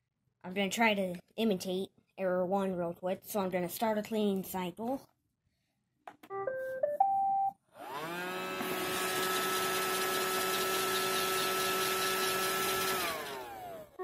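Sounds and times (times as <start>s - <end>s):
vacuum motor whine: 7.8s - 14.0s.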